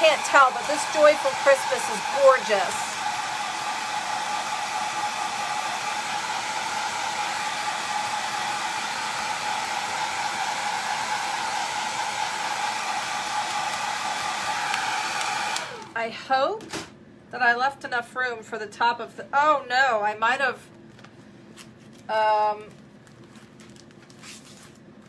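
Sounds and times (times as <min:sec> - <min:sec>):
hair dryer running: 0:00.0 - 0:16.0.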